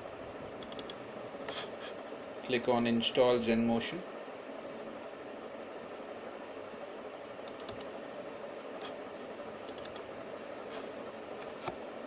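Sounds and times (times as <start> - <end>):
steady background hiss: 0.0 - 12.0
keyboard and mouse clicks: 0.6 - 1.0, 7.5 - 7.9, 9.7 - 10.1.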